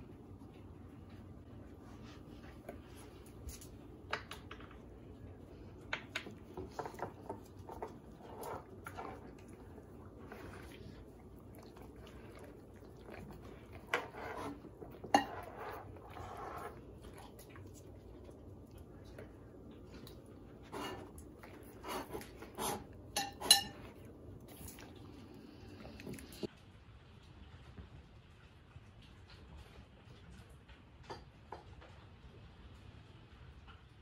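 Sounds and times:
dogs licking plates: 0.0s - 26.5s
plates clinking and scraping: 6.2s - 9.6s, 13.7s - 16.8s, 20.6s - 24.1s.

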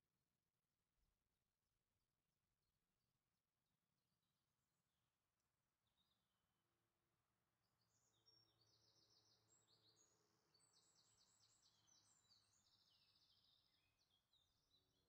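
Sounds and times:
faint bird chirps and trills: 7.5s - 15.0s.

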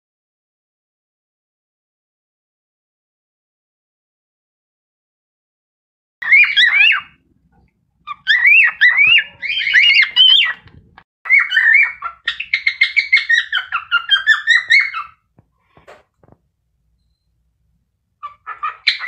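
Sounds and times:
cockatiel whistling: 6.2s - 7.2s, 8.1s - 10.7s, 11.3s - 15.2s, 18.2s - 19.0s.

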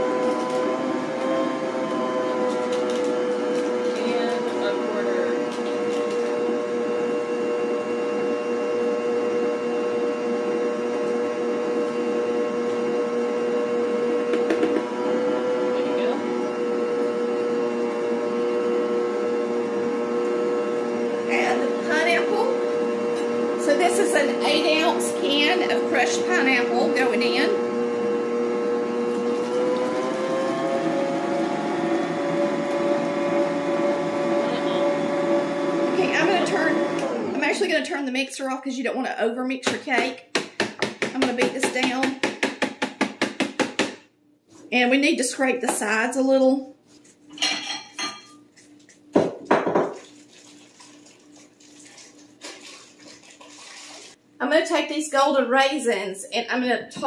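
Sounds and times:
stand mixer motor whining: 0.0s - 37.8s.

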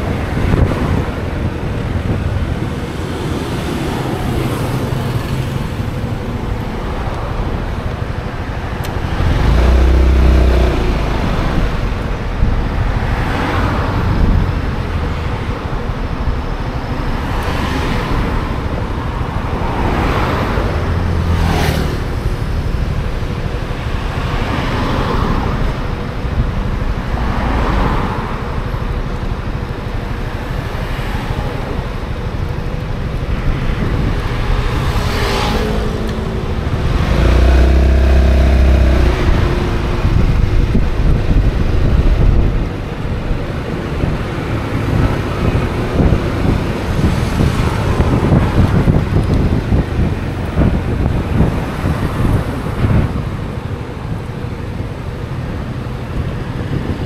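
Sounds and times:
deep engine drone: 0.0s - 13.1s, 33.4s - 47.2s
vehicles swishing past: 0.0s - 57.0s
wind noise on microphone: 0.0s - 57.0s.

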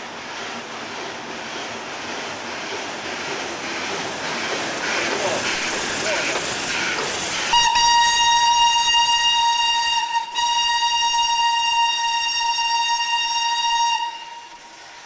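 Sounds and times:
steam hissing: 0.0s - 15.0s
steam whistle long blast: 7.5s - 14.7s.

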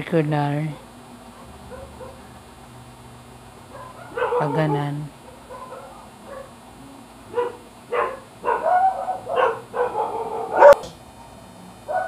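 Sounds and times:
dog barking: 0.7s - 2.3s, 3.7s - 6.6s, 7.3s - 10.9s.

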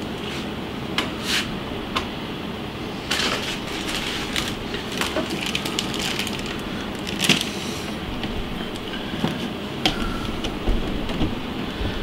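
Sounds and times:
aquarium equipment hum: 0.0s - 12.0s
plastic bag crinkling: 3.1s - 7.6s.

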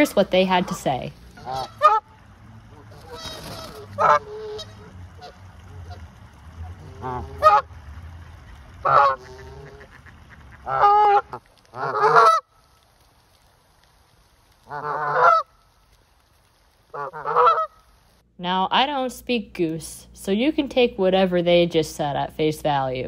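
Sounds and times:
geese honking: 0.0s - 12.8s, 14.6s - 15.8s, 16.9s - 18.0s.

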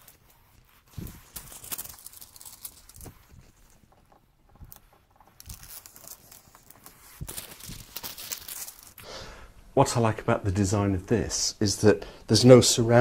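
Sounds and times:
plastic film crackling: 0.0s - 9.0s.

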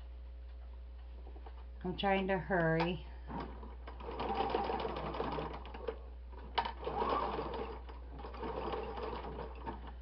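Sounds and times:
sewing machine stitching: 3.3s - 10.0s.

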